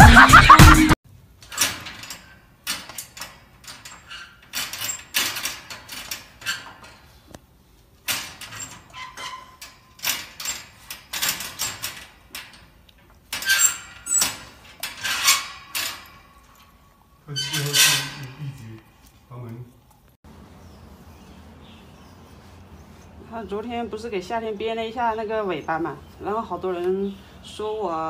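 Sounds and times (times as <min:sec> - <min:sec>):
wire crate rattling: 0:01.4 - 0:07.3, 0:08.0 - 0:16.8.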